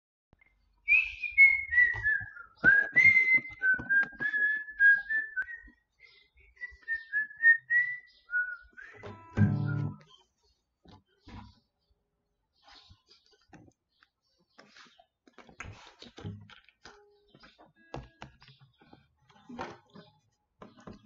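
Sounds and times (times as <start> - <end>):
person whistling a melody: 0.9 - 5.8, 6.4 - 10.0
acoustic guitar strings struck: 9.0 - 10.0.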